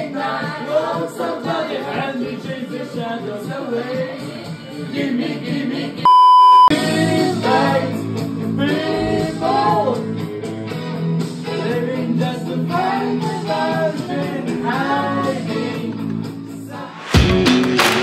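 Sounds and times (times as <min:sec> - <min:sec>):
music with singing voices: 0:00.0 - 0:06.1, 0:06.7 - 0:18.0
loud steady beep: 0:06.1 - 0:06.7.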